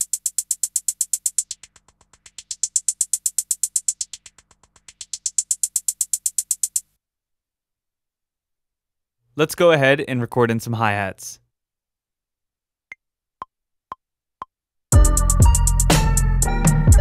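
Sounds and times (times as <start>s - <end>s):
repeated drum hits with filter sweep: 0.0s - 6.6s, 15.0s - 17.0s.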